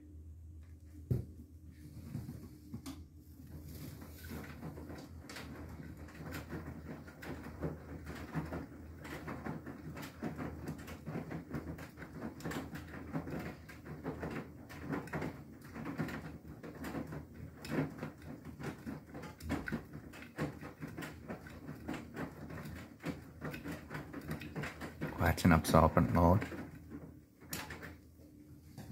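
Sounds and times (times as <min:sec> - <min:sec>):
washing machine motor hum: 0:00.0 - 0:28.9
water sloshing in washing machine: 0:01.0 - 0:28.9.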